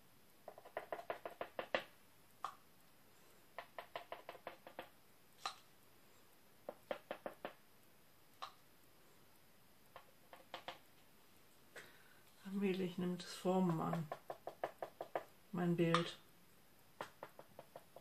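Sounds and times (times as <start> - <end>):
paint tool tapping on tray: 13.6 - 16.2, 17.0 - 18.0.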